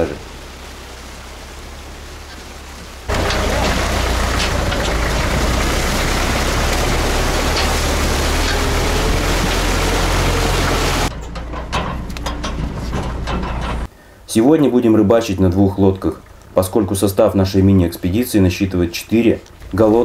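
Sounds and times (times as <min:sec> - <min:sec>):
tractor diesel engine running: 0:00.0 - 0:13.9
loud rushing noise: 0:03.1 - 0:11.1.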